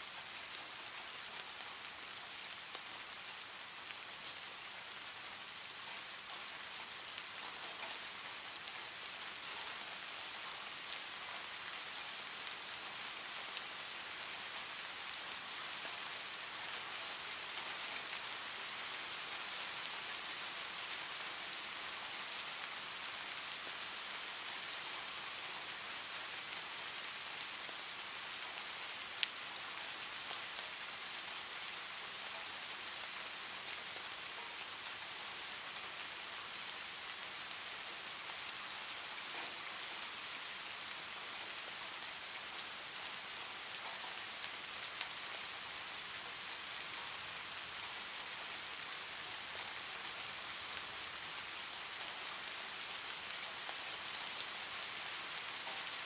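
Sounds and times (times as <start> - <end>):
heavy rain on a tin roof: 0.0 - 56.0.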